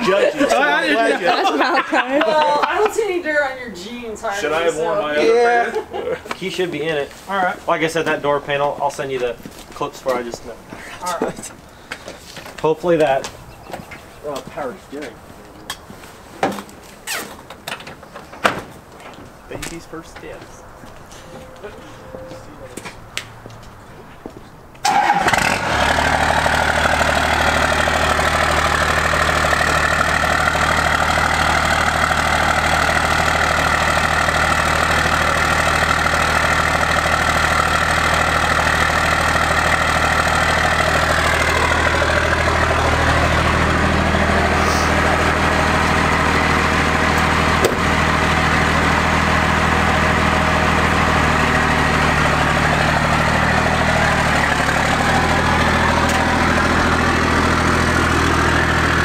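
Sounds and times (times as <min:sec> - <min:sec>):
engine whine: 0:19.5 - 0:59.0
diesel engine idling: 0:24.8 - 0:59.0.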